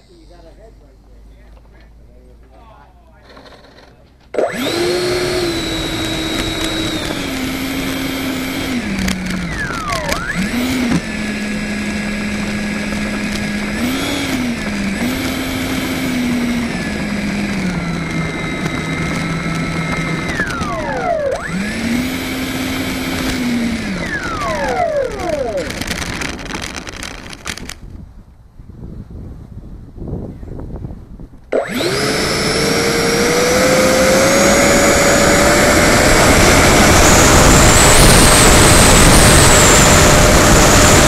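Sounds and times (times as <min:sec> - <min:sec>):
electric ducted fan whining: 0:00.0 - 0:29.2, 0:29.8 - 0:41.0.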